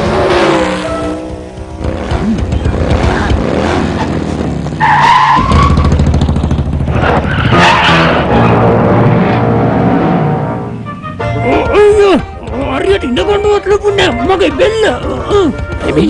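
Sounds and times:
background music: 0:00.0 - 0:04.0, 0:07.6 - 0:16.0
cartoon racing car engine: 0:00.0 - 0:10.7
tyre squeal: 0:04.8 - 0:06.0.

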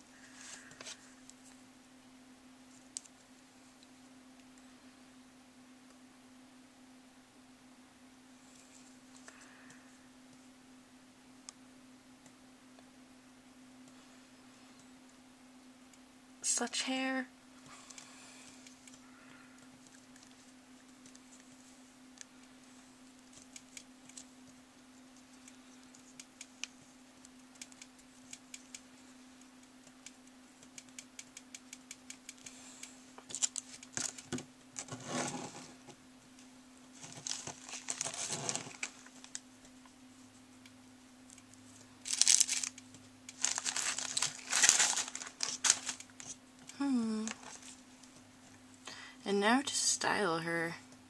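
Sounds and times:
steady low hum: 0:00.0 - 0:51.0
plastic crinkling: 0:37.0 - 0:39.4, 0:42.0 - 0:46.4.

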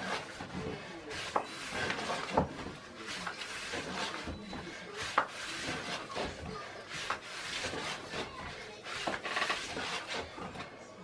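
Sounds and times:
rolling pin scraping on wooden board: 0:00.0 - 0:10.9.

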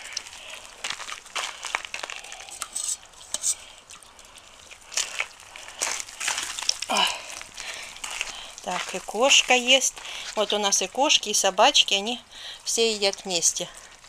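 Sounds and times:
animals chewing and lapping: 0:00.0 - 0:10.9, 0:13.0 - 0:14.0
bowl clicks and scrapes: 0:01.7 - 0:04.1.

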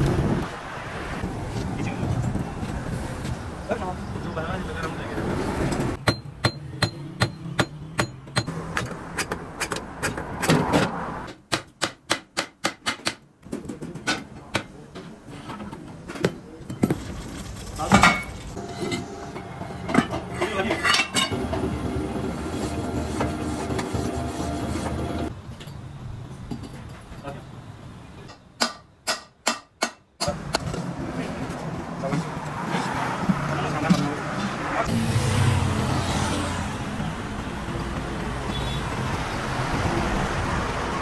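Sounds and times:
hammer striking metal: 0:06.0 - 0:10.6, 0:28.3 - 0:30.7.

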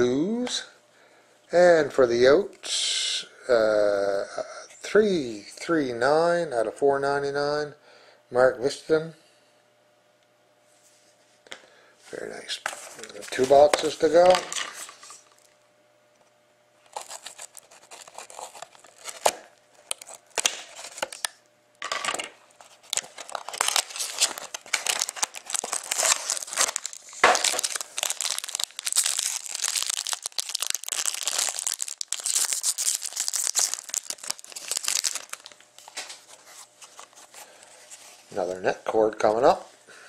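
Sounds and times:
wrapping crinkling: 0:12.6 - 0:15.6, 0:16.8 - 0:21.3, 0:22.5 - 0:38.5.

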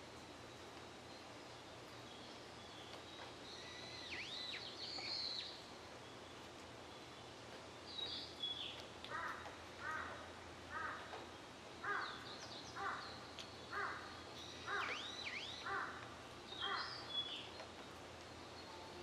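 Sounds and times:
steady background hiss: 0:00.0 - 0:19.0
small birds whistling calls: 0:00.5 - 0:07.3, 0:07.9 - 0:09.4, 0:10.9 - 0:19.0
crow cawing: 0:09.1 - 0:11.2, 0:11.8 - 0:12.2, 0:12.8 - 0:13.1, 0:13.7 - 0:17.0.

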